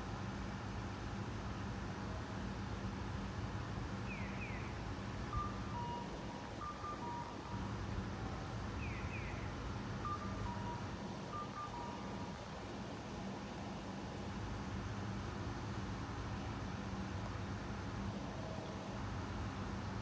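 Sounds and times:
electronic bird-call crossing signal: 5.3s - 7.7s, 8.8s - 12.4s.

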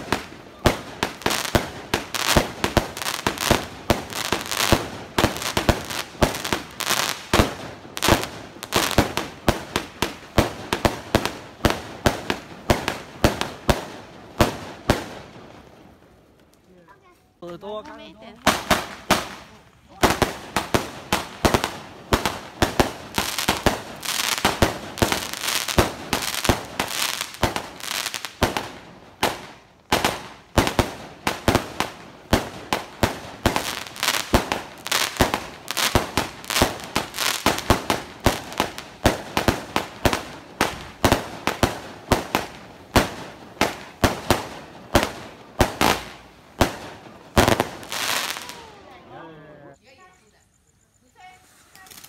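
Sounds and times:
firework bangs: 0.0s - 15.8s, 18.4s - 49.0s.

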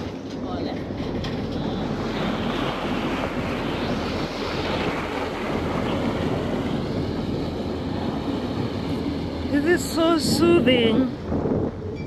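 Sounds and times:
ferry engine droning: 0.0s - 12.0s
rushing water: 0.0s - 12.0s
wind on microphone: 0.0s - 12.0s.

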